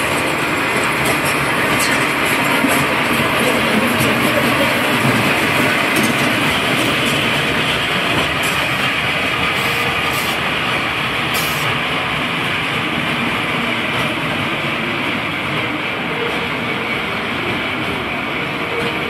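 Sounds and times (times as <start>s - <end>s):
coaster wheels rolling rumble: 0.0s - 19.0s
brief hisses: 11.4s - 11.7s.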